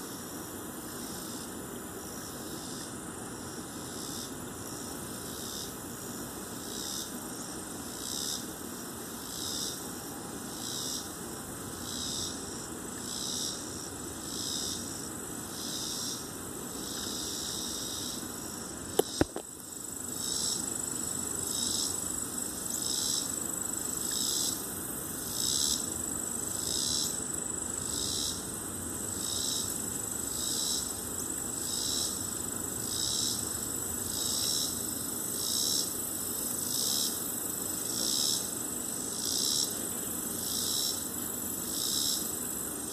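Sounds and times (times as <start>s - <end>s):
insects calling in high pulses: 0.0s - 42.9s.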